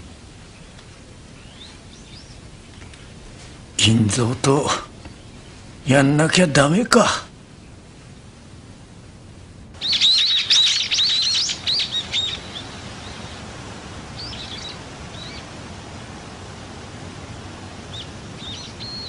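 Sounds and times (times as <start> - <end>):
birds twittering: 0.0 - 5.8, 9.8 - 19.0
steady outdoor hiss: 0.0 - 19.0.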